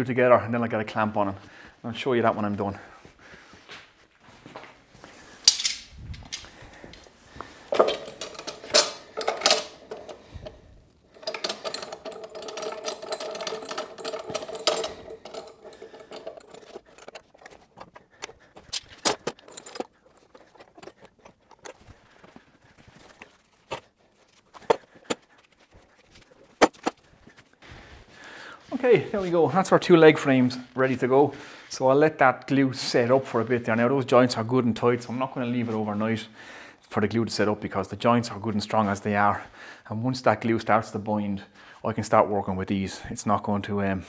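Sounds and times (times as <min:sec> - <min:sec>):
metal clamps clanking: 0:05.5 - 0:06.5, 0:07.7 - 0:21.9
metal scraping and ringing: 0:07.7 - 0:21.6.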